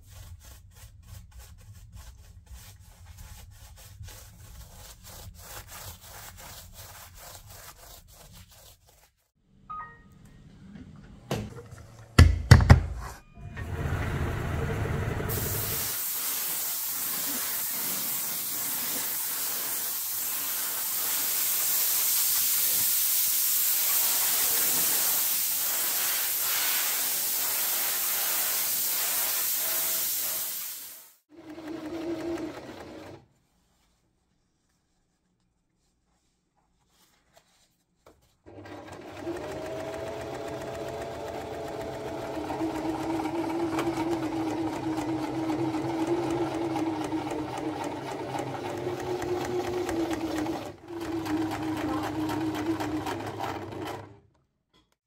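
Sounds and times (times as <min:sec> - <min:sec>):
electric sewing machine running: 0:13.5 - 0:15.8, 0:31.3 - 0:33.2, 0:38.5 - 0:54.2
spray gun hissing: 0:15.3 - 0:31.2.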